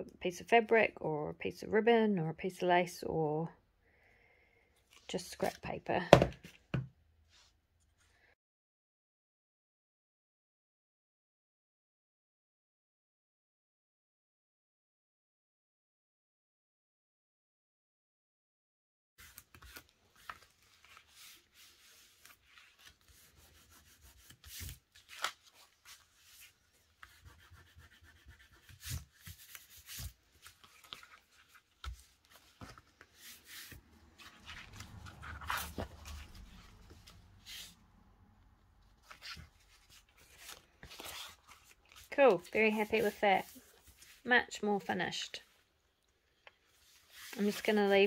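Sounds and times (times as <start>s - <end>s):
paper and fabric pages rustling: 19.2s - 38.1s, 38.7s - 45.7s, 46.5s - 48.0s.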